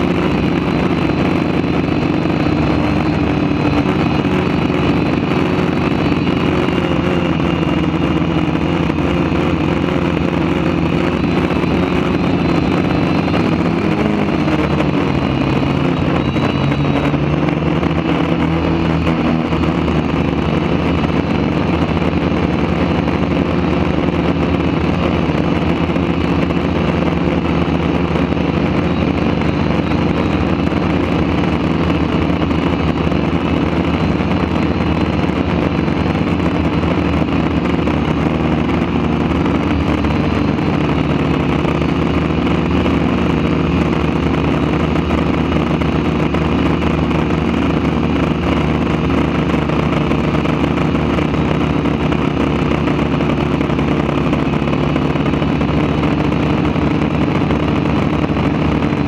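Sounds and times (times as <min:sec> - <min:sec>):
quadcopter motors humming: 0:00.0 - 0:59.0.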